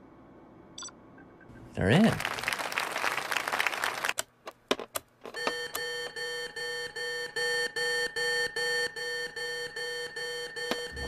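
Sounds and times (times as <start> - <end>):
electronic alarm beeping: 5.4 - 11.0.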